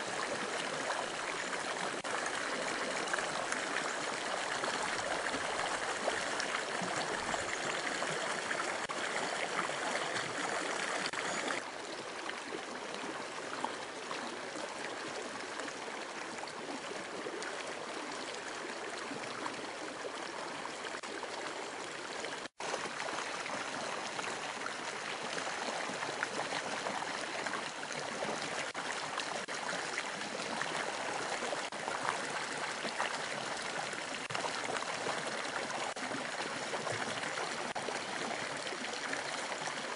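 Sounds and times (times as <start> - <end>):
creek splashing over rocks: 0.0 - 39.9.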